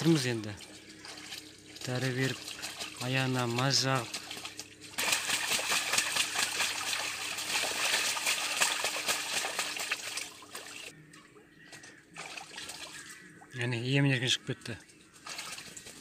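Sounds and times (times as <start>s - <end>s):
geese splashing in water: 0.0s - 11.0s, 11.7s - 13.5s, 15.0s - 16.0s.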